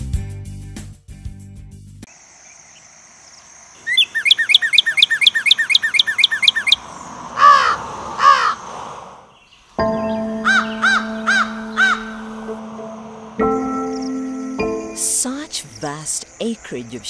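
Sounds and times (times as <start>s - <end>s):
descending bird chirps: 3.8s - 8.7s, 9.3s - 16.5s
harsh caws: 7.3s - 8.6s, 10.5s - 12.2s.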